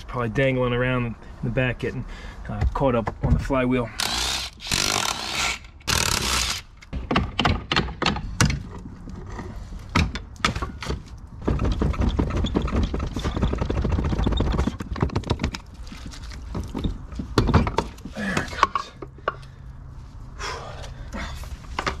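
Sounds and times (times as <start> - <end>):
metal parts rattling and rubbing: 11.4 - 19.0.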